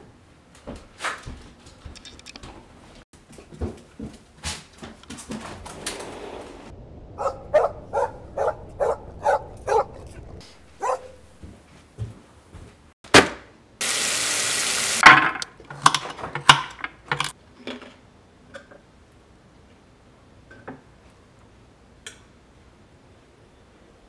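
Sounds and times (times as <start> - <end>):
dog barking: 7.2 - 11.4
loud steady hiss: 13.8 - 15.1.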